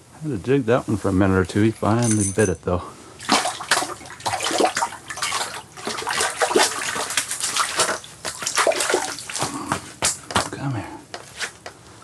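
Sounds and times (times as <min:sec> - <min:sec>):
fish flopping on wet ice: 0:03.2 - 0:09.6.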